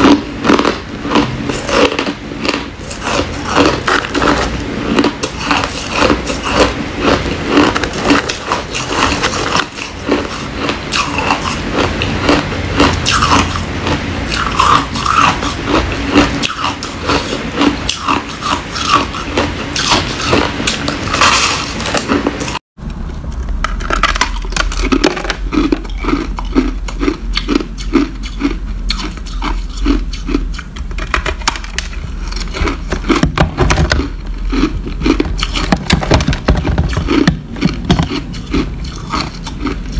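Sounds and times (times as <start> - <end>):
ice crunching between teeth: 0.0 - 22.6, 23.7 - 30.7, 31.3 - 39.9
low steady hum: 0.0 - 39.9.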